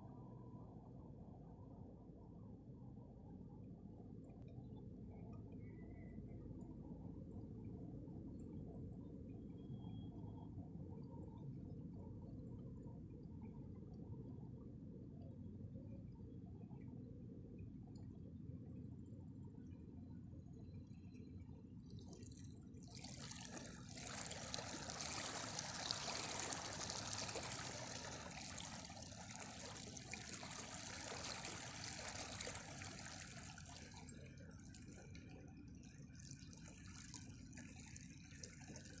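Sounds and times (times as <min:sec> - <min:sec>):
low steady rumble: 0:00.0 - 0:39.0
water lapping over pebbles: 0:21.9 - 0:35.3, 0:36.2 - 0:39.0.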